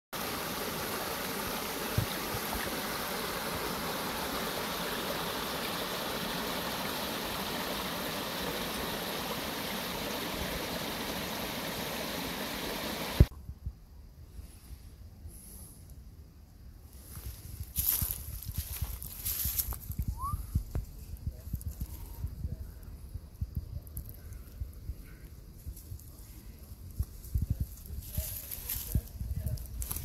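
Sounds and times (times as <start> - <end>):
stream rushing over rapids: 0.2 - 13.3.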